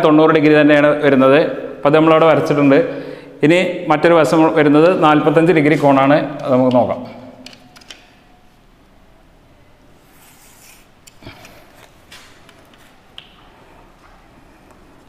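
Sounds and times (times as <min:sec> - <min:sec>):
chalk scraping on blackboard: 0:10.0 - 0:11.0.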